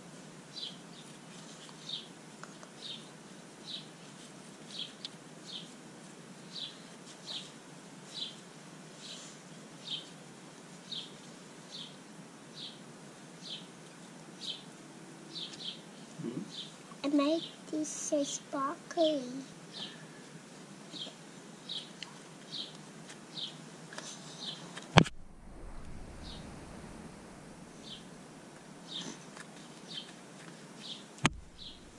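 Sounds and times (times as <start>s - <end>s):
faint low hum: 24.4s - 31.9s.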